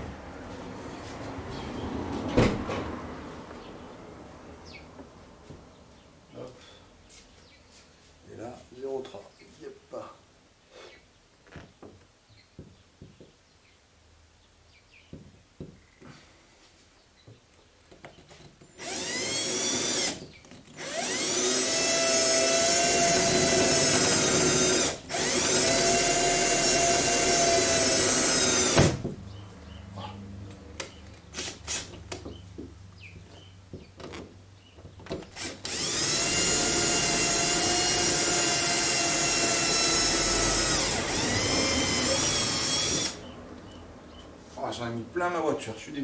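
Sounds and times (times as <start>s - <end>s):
cordless drill in sheet metal: 18.7s - 29.0s, 35.3s - 43.4s.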